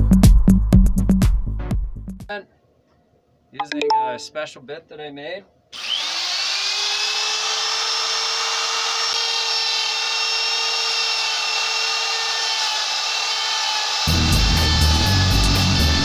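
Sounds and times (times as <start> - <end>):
die grinder grinding wood: 5.8 - 16.0.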